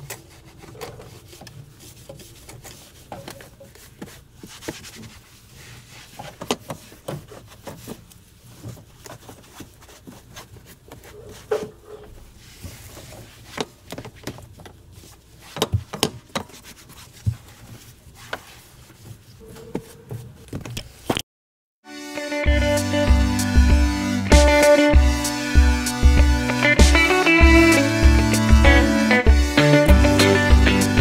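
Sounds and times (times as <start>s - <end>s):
towel scrubbing floor mat: 3.8s - 11.6s.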